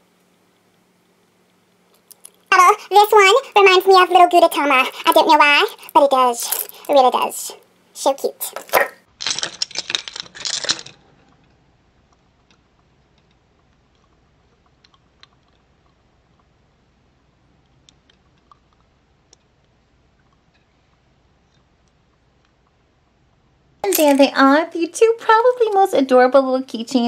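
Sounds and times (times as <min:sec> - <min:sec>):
plastic clicking and packaging rustling: 0:08.5 - 0:11.5.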